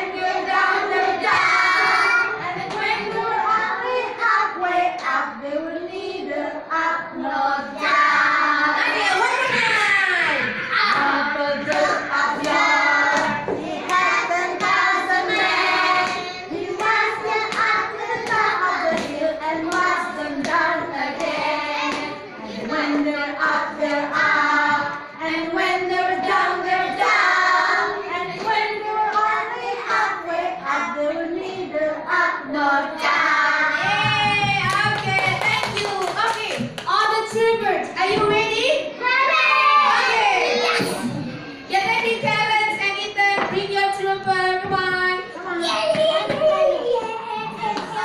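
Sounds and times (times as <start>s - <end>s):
children singing: 0.0s - 35.0s, 39.0s - 41.7s, 45.6s - 48.0s
hand claps: 33.9s - 36.9s.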